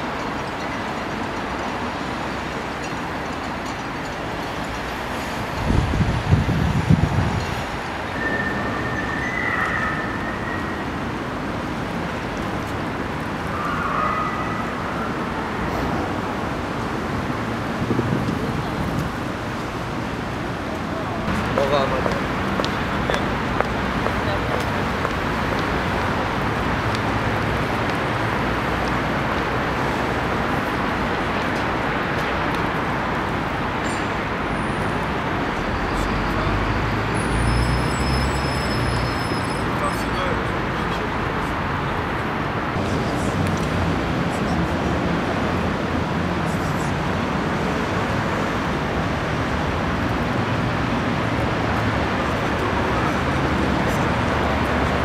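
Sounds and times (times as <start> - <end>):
distant traffic: 0.0 - 55.0
faint two-tone siren: 13.5 - 15.5.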